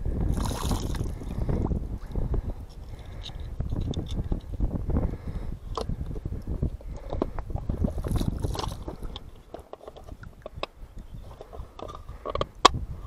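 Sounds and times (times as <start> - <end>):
rocks knocking and scraping: 0.3 - 4.7, 5.7 - 13.0.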